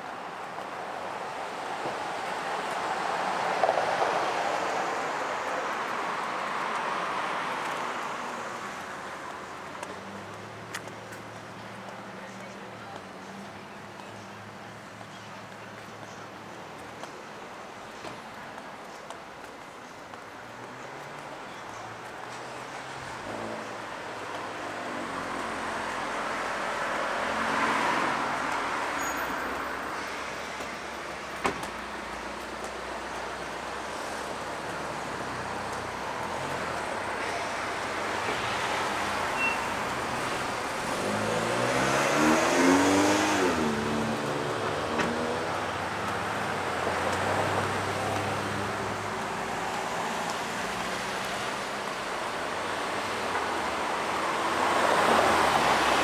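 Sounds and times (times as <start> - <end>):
cars passing: 0.0 - 56.0
car passing close by: 24.4 - 30.2, 34.0 - 56.0.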